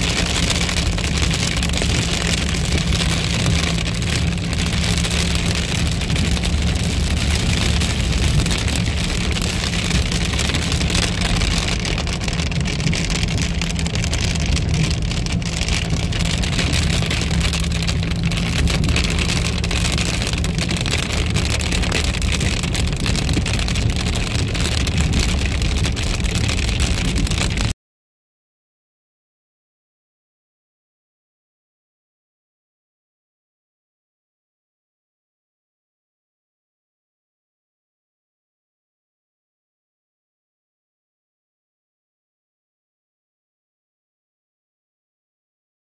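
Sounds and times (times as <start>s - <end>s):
engine and road rumble: 0.0s - 27.8s
rain on car: 0.0s - 27.8s.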